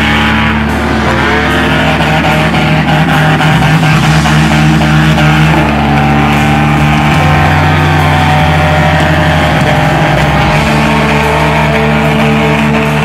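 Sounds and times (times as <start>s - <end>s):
rock music with electric guitar: 0.0s - 13.0s
tractor engine running hard: 0.0s - 13.0s.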